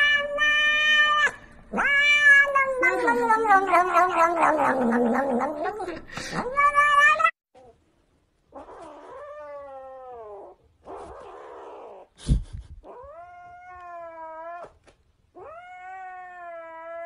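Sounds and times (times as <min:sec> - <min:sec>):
kitten yowling: 0:12.9 - 0:14.8, 0:15.4 - 0:17.0.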